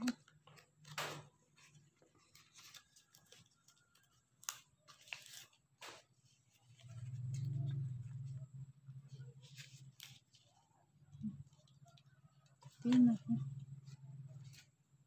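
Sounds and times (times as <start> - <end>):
banana leaf rustling and crinkling: 0.8 - 7.8
leaf crackle: 2.2 - 8.2.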